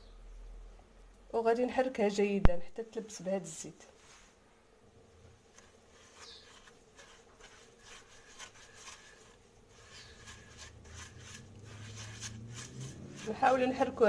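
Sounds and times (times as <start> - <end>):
spatula scraping in glass bowl: 5.6 - 14.0.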